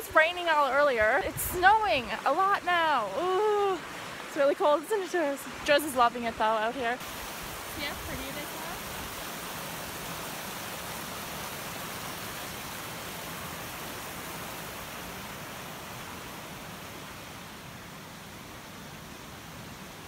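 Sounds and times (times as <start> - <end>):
creek rushing over rocks: 0.0 - 20.0.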